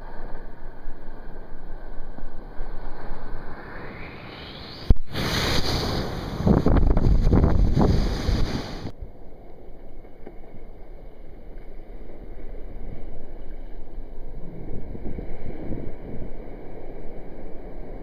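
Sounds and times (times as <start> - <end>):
surf splashing: 4.9 - 8.9
muffled underwater rumble: 9.6 - 18.0.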